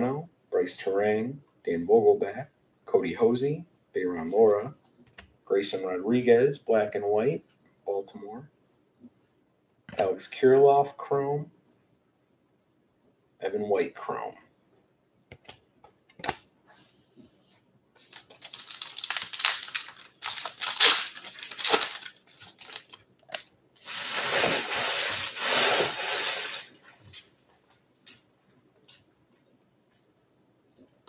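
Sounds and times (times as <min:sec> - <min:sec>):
wrapper tearing: 0:18.0 - 0:26.8
wrapper crinkling: 0:18.0 - 0:27.3.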